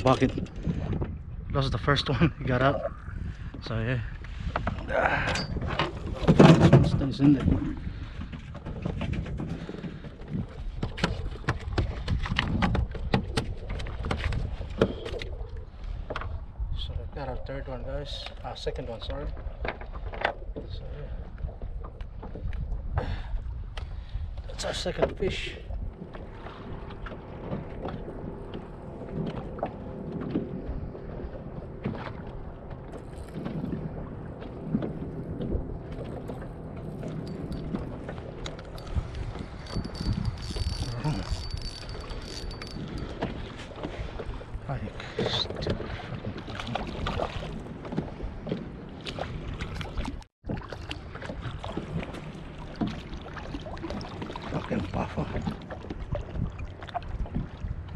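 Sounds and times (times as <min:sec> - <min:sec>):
wind on the microphone: 0:00.0 - 0:48.6, 0:49.2 - 0:57.9
water against a kayak hull: 0:00.0 - 0:57.9
low rumble: 0:25.5 - 0:43.4.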